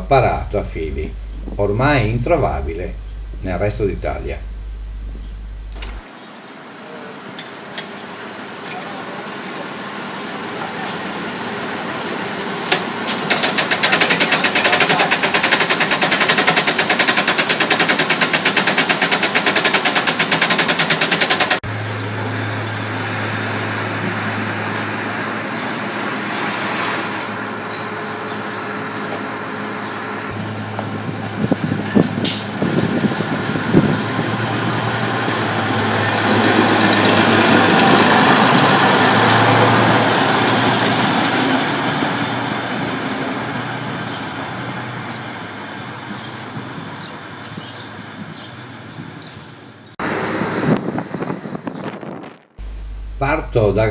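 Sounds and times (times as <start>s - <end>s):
diesel railcar engine idling: 0.0s - 6.0s, 6.7s - 18.4s, 20.0s - 51.6s, 52.6s - 53.9s
fast mechanical rattle: 13.1s - 21.7s.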